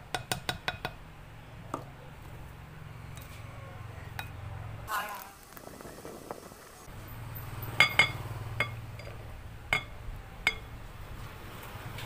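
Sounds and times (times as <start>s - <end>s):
glass knocking on glass: 9.7s - 9.9s.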